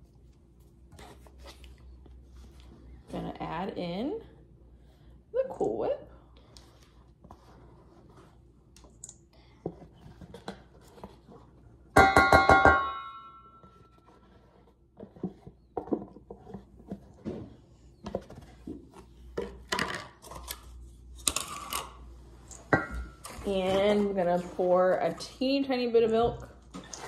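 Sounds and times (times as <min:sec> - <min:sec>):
metal bowl struck ringing: 0:12.0 - 0:13.6.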